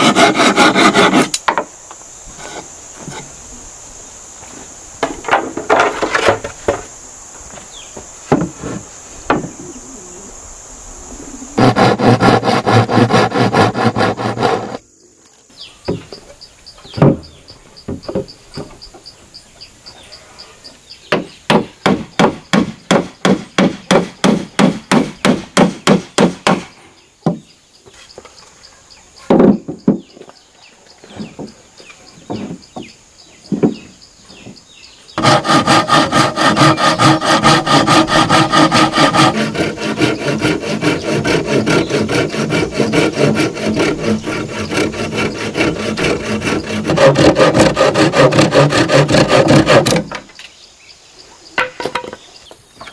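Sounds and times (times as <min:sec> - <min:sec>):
hand saw cutting board: 0:00.0 - 0:01.4, 0:11.6 - 0:14.8, 0:35.2 - 0:50.1
hammering nails into wood: 0:21.1 - 0:26.7.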